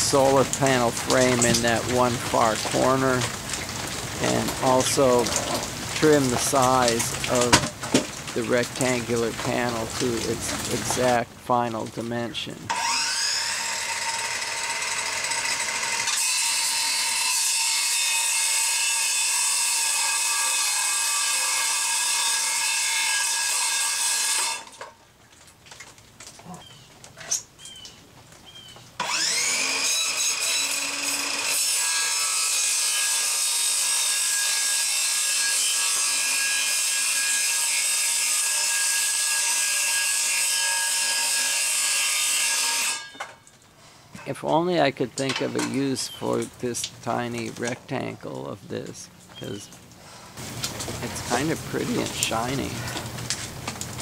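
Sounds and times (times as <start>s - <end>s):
circular saw cutting panel: 12.7s - 24.8s, 29.0s - 43.3s.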